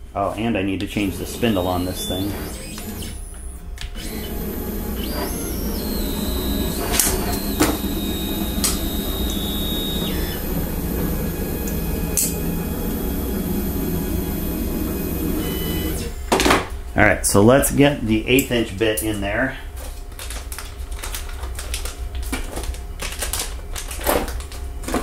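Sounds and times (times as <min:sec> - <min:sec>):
low steady hum: 0:00.0 - 0:20.2
stepper motor whine: 0:00.9 - 0:16.3.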